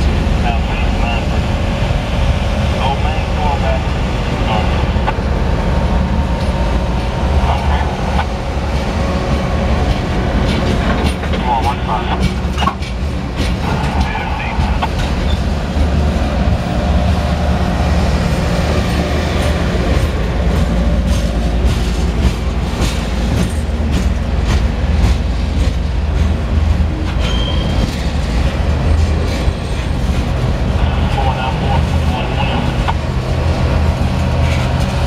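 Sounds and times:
steel wheels rumbling on rail: 0:00.0 - 0:35.0
high wheel squeal: 0:27.2 - 0:27.9.

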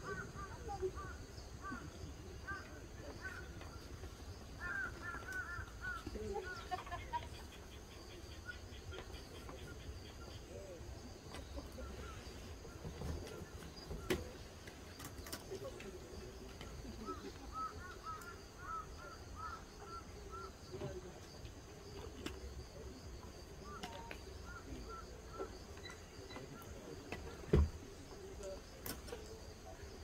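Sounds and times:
bird chirping: 0:00.0 - 0:21.0.

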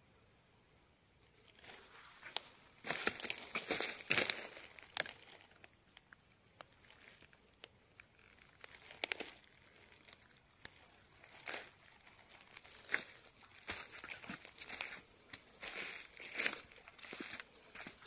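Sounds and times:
footsteps on dry leaves: 0:01.5 - 0:05.6, 0:08.1 - 0:18.0.

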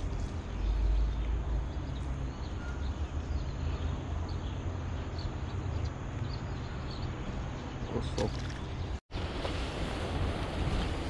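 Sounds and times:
small birds chirping: 0:00.0 - 0:09.0.

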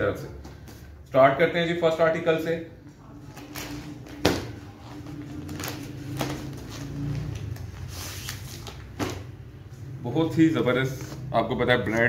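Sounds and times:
plastic wrapping rustling: 0:03.2 - 0:09.3.

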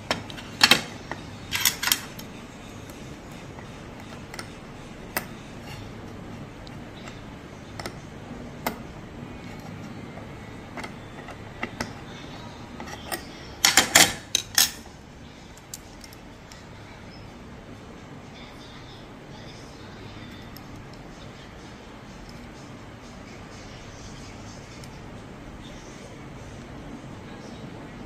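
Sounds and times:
metal tools clicking on screw: 0:00.0 - 0:05.9, 0:06.6 - 0:08.0, 0:09.4 - 0:14.9, 0:15.6 - 0:16.6.

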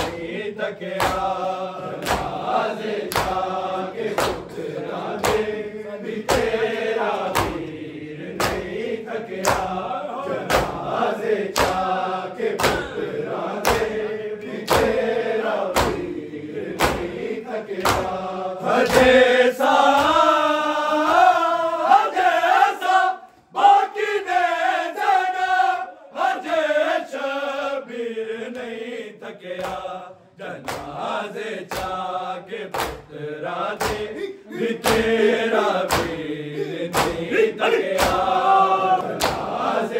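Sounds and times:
hands slapping chests: 0:00.0 - 0:20.4, 0:21.0 - 0:21.4, 0:29.6 - 0:29.9, 0:30.6 - 0:39.8
men singing a lament: 0:00.0 - 0:39.9.

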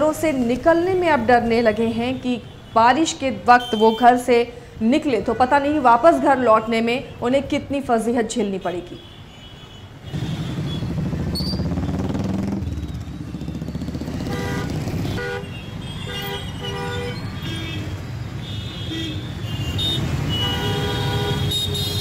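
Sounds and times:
car and motorcycle engines rumbling: 0:00.0 - 0:02.4, 0:10.0 - 0:22.0.

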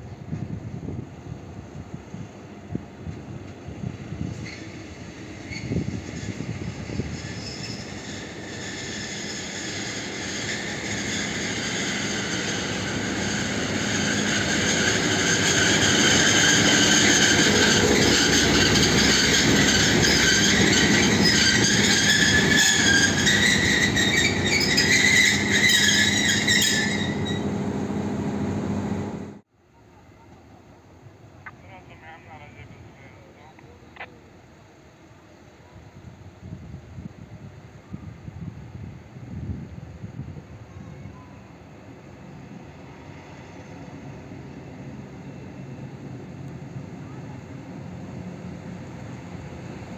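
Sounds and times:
diesel locomotive engine: 0:00.0 - 0:49.9
high-pitched metallic squealing: 0:05.4 - 0:27.7.

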